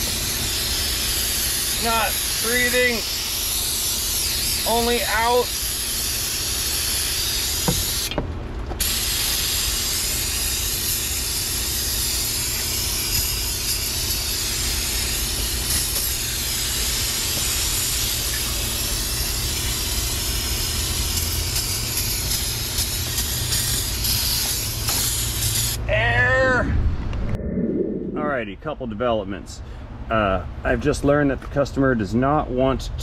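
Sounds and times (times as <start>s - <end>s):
aerosol can spraying hiss: 0.0s - 8.2s, 8.8s - 25.8s.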